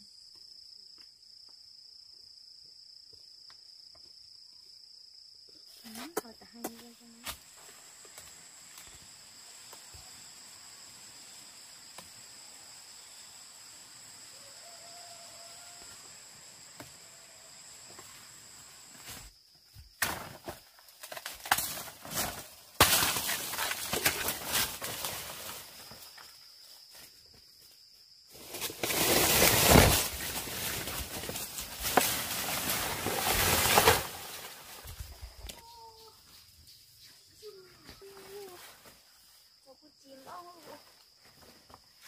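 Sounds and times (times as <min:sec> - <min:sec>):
insects calling: 0:00.0 - 0:42.0
rustling: 0:28.4 - 0:35.4.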